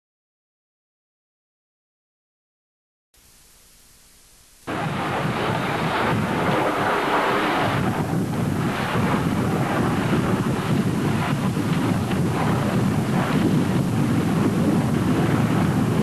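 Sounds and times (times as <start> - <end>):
faint tape hiss: 3.2 - 7.5
aircraft rumble: 4.7 - 16.0.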